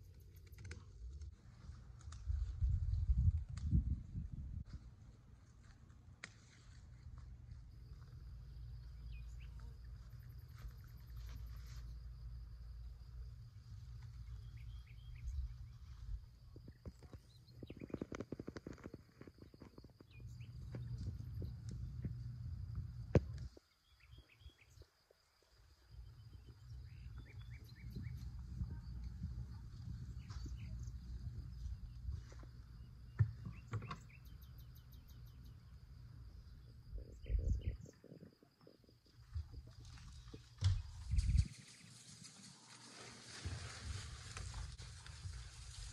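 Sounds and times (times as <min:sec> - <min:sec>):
low wind rumble: 0:01.3 - 0:05.1, 0:35.6 - 0:38.1
insect drone: 0:06.4 - 0:45.9
birds chirping: 0:08.2 - 0:12.0, 0:14.0 - 0:18.9, 0:20.0 - 0:22.4, 0:23.6 - 0:24.9, 0:25.8 - 0:38.8.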